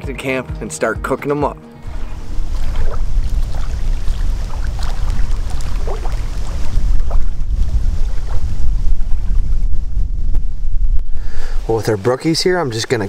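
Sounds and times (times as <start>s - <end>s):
wind buffeting microphone: 1.8s - 13.0s.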